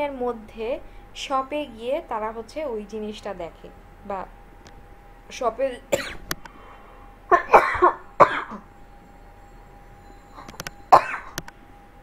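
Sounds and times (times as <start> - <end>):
person coughing: 5.9 - 6.2, 7.3 - 8.7, 11.0 - 11.4.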